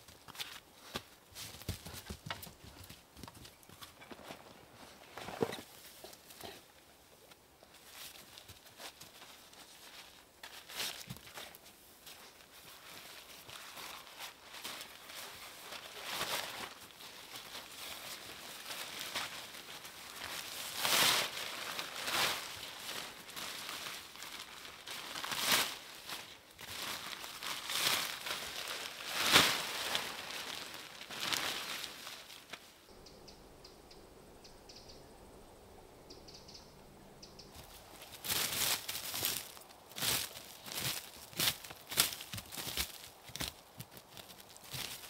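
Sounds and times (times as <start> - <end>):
crinkling and rustling: 0.0 - 6.6, 7.2 - 32.8, 37.5 - 45.0
loud crunches: 37.6 - 45.0.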